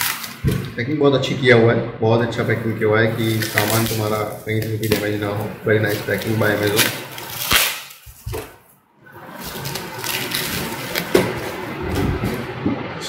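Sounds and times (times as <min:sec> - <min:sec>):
plastic wrap rustling and crinkling: 0:00.0 - 0:00.7, 0:02.4 - 0:12.6
sharp plastic crackle: 0:00.0 - 0:00.8, 0:02.6 - 0:12.6.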